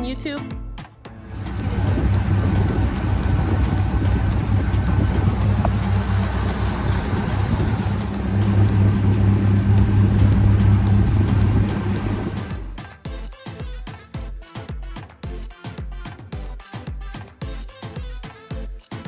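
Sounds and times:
outboard motor droning: 1.2s - 12.8s
wind and water rushing: 1.2s - 12.8s.

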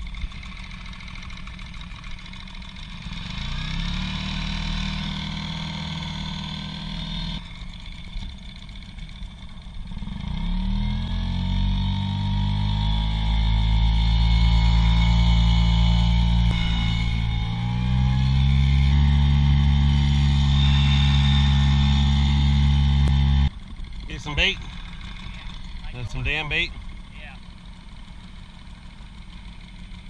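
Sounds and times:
outboard motor running: 11.9s - 30.0s.

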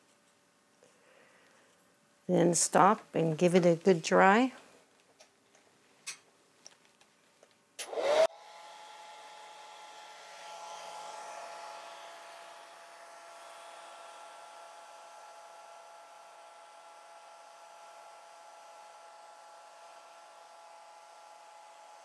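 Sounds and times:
hair dryer blowing: 7.8s - 22.0s.

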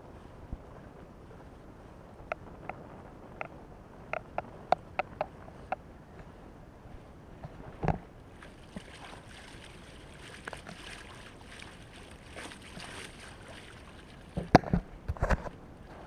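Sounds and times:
water splashing along boat bow: 0.0s - 16.0s.

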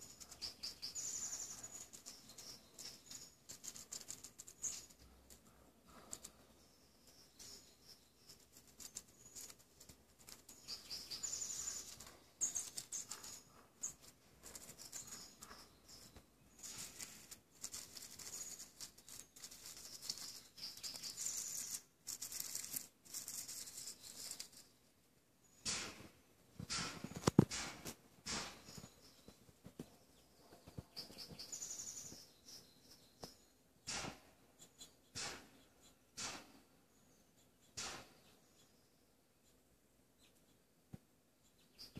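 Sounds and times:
rodent digging in dry dirt: 0.0s - 24.7s.

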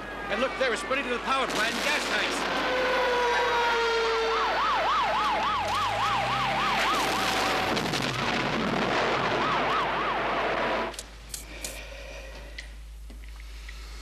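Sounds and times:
wailing siren: 2.4s - 10.9s
yelp siren: 2.6s - 7.7s, 9.2s - 10.9s
truck engine revving: 5.5s - 9.1s
loud noisy rush: 6.0s - 10.9s.

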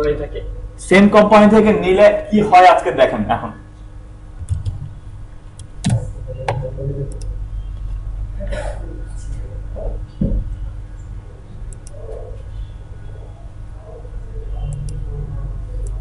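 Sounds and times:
low electrical hum: 0.0s - 16.0s
computer key clicks: 11.7s - 12.0s.

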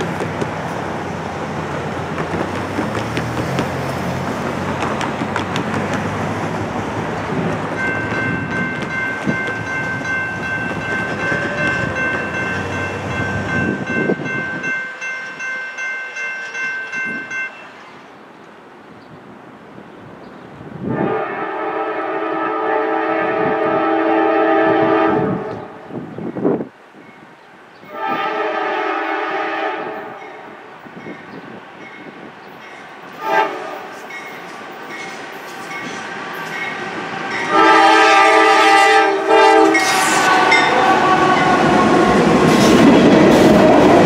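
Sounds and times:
cars passing over crossing: 0.0s - 14.4s
crossing warning bell ringing: 7.7s - 18.0s, 34.0s - 42.3s.

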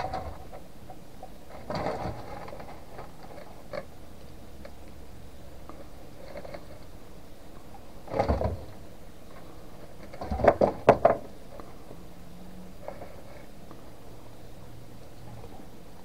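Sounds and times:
iguanas crunching food pellets: 1.5s - 4.9s, 5.6s - 11.9s.

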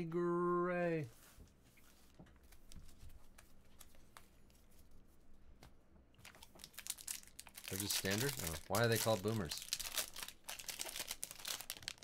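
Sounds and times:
trading cards being handled: 5.6s - 12.0s
crinkling: 6.1s - 12.0s.

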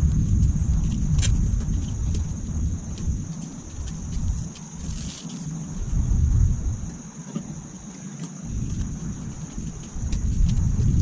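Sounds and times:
low rumble: 0.0s - 5.0s.

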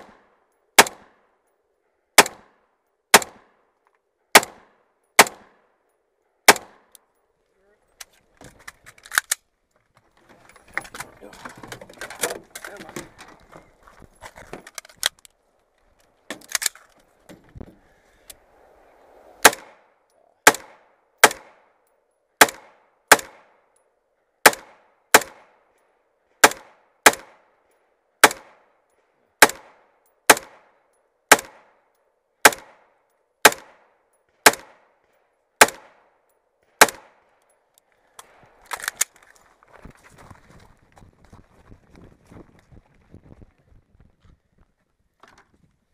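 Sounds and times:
rifle gunshots: 0.0s - 1.2s, 2.2s - 3.5s, 4.3s - 5.6s, 6.5s - 6.9s, 19.4s - 21.7s, 22.4s - 23.5s, 24.4s - 25.5s, 26.4s - 27.4s, 28.2s - 28.6s, 29.4s - 30.7s, 31.3s - 31.8s, 32.4s - 34.9s, 35.6s - 36.0s, 36.8s - 37.2s
handling clicks and knocks: 7.9s - 17.8s.

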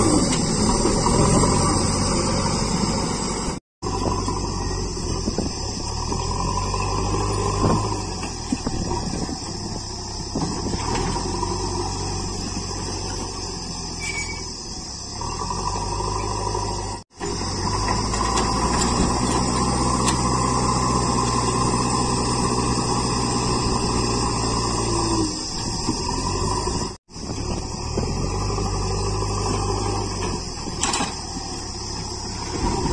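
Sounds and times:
diesel engine under load: 0.0s - 32.9s.

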